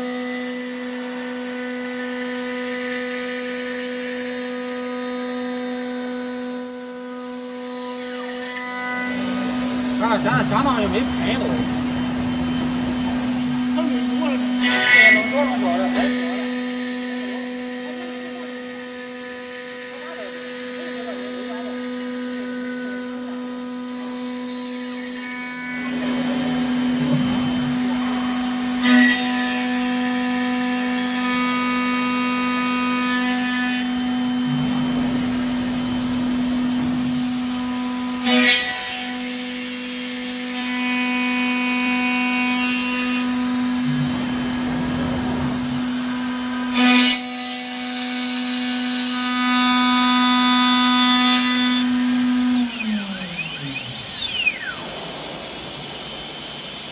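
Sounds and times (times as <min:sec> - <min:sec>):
high-pitched spindle whine: 0:00.0 - 0:28.7, 0:50.0 - 0:56.9
machine electric hum: 0:00.0 - 0:56.9.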